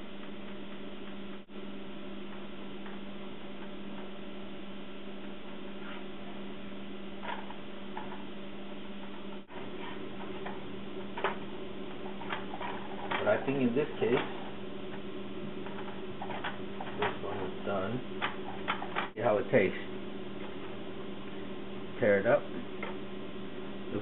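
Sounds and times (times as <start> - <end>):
electrical hum: 0.0 - 24.0.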